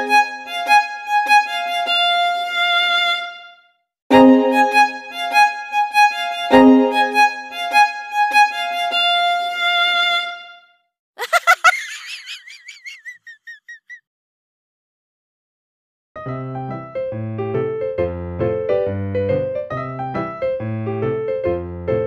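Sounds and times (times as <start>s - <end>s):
violin-like melody: 0.0s - 10.8s.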